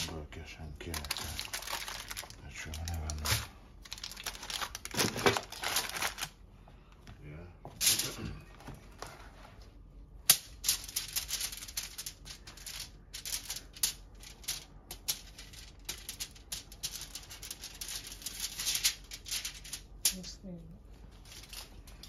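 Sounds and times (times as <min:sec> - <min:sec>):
aluminium foil crinkling: 0:00.0 - 0:06.4, 0:10.4 - 0:20.4, 0:21.0 - 0:22.0.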